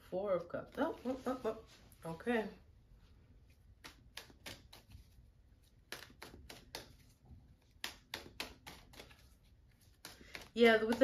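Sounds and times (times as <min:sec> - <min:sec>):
cards clicking and tapping: 0:03.7 - 0:11.0.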